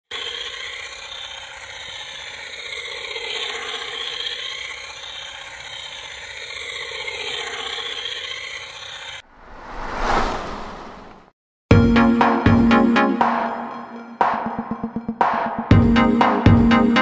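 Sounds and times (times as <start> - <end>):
toy helicopter rotor whining: 0.1 - 9.2.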